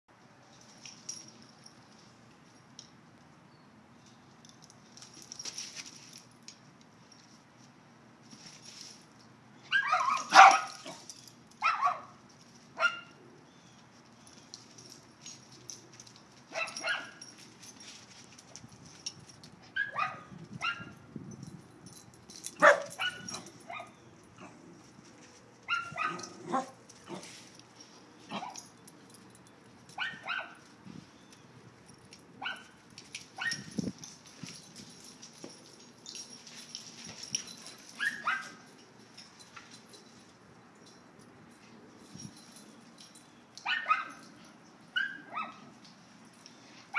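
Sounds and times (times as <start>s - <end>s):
dogs barking and yipping: 9.6s - 12.2s, 12.8s - 13.2s, 16.4s - 17.9s, 19.0s - 21.0s, 22.3s - 24.7s, 25.6s - 30.8s, 31.8s - 40.0s, 42.4s - 45.8s.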